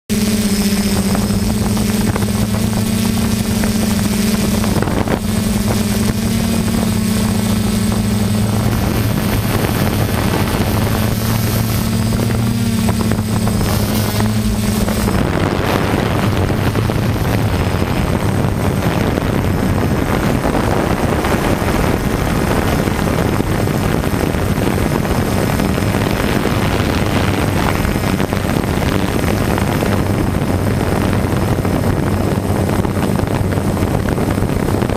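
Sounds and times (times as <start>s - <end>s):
drone motors humming: 0.0s - 34.9s
rough rushing noise: 0.1s - 34.9s.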